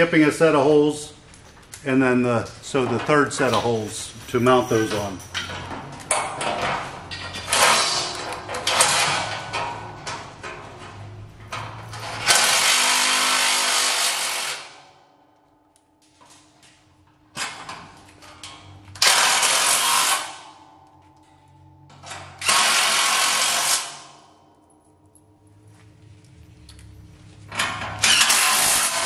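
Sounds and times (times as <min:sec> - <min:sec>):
impact driver whir: 0:28.0 - 0:29.0.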